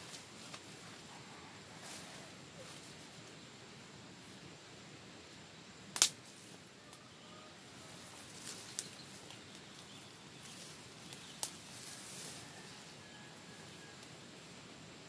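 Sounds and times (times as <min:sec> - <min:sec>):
tarp and undergrowth rustling: 0:00.0 - 0:03.4, 0:07.8 - 0:14.6
sharp snap: 0:05.9 - 0:06.4.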